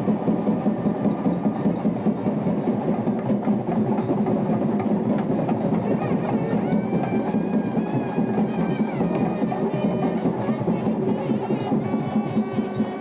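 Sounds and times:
fast rhythmic drumming: 0.0 - 13.0.

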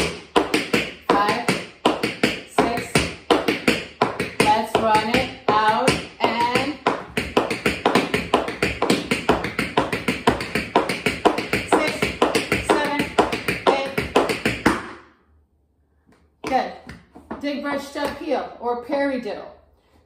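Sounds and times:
tap shoes clicking on hard floor: 0.0 - 15.0.

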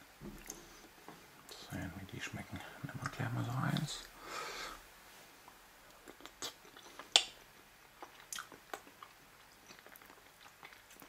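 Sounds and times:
mouth clicks and smacks: 5.5 - 11.0
person chewing food: 5.5 - 11.0.

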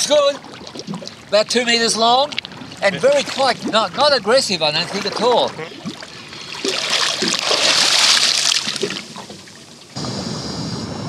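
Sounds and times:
water splashing and sloshing: 0.0 - 10.0
faint high whine: 8.9 - 11.0.

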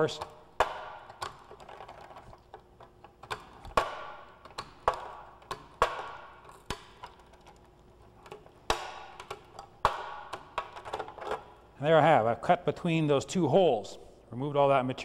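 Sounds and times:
nibbler snapping through metal: 0.0 - 11.6.

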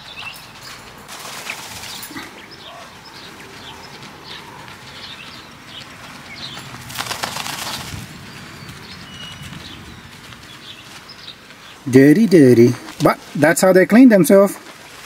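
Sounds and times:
wing flutter and flung grit: 1.0 - 2.8, 6.0 - 11.8.

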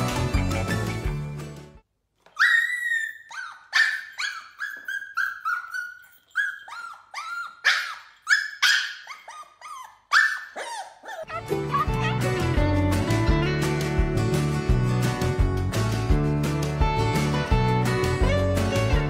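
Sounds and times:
puppy whimpering yelps: 2.3 - 11.4.

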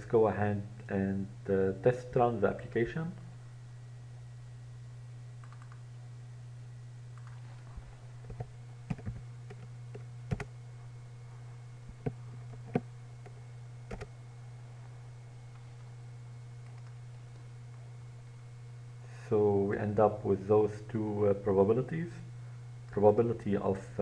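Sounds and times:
low electrical hum: 0.0 - 24.0
keyboard keys clicking: 5.4 - 5.8, 7.2 - 7.4, 8.3 - 10.5, 12.0 - 14.1, 16.6 - 17.0.

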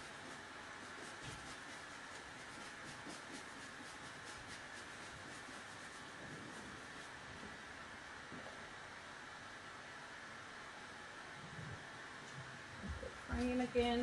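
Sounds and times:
paintbrush swishing: 0.0 - 7.6
steady low hiss: 0.0 - 14.0.

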